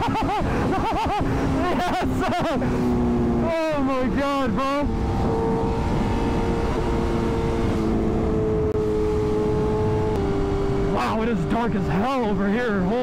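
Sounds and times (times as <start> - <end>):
motorcycle engine cruising: 0.0 - 13.0
wind noise: 0.0 - 13.0.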